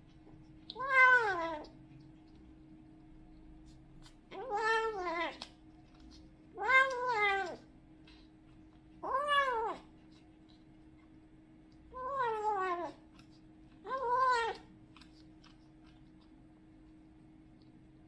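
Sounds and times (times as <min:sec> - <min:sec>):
faint steady hum: 0:00.0 - 0:18.0
young cat meowing: 0:00.7 - 0:01.7, 0:04.3 - 0:05.5, 0:06.6 - 0:07.6, 0:09.0 - 0:09.9, 0:13.8 - 0:14.7.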